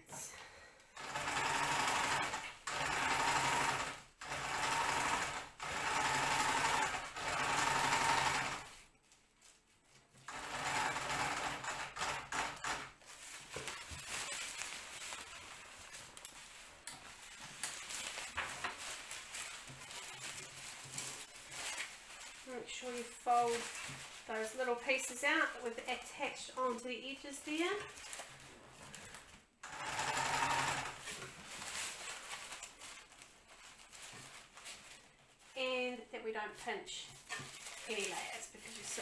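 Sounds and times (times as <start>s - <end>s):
sewing machine stitching: 1.0s - 8.7s, 10.3s - 13.0s, 29.6s - 31.4s.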